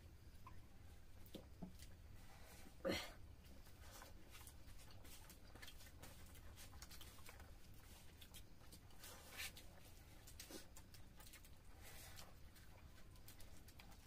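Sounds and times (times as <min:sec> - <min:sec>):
low steady hum: 0:00.0 - 0:14.0
people chewing: 0:03.5 - 0:14.0.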